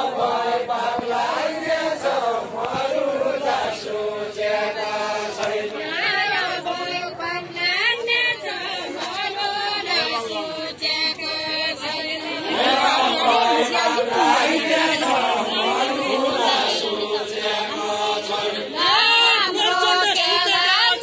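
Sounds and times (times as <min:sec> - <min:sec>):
group singing folk song: 0:00.0 - 0:21.0.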